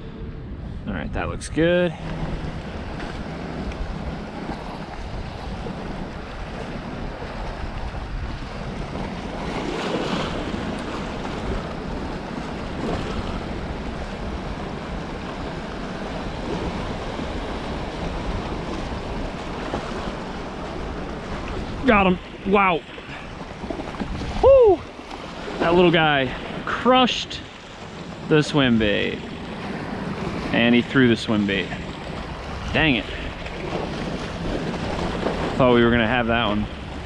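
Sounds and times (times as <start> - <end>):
wind buffeting the microphone: 0.0 - 26.7.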